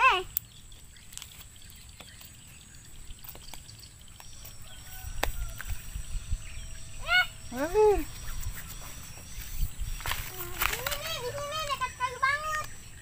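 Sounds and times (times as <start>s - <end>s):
steady high-pitched whine: 1.6s - 13.0s
low rumble: 4.7s - 10.3s.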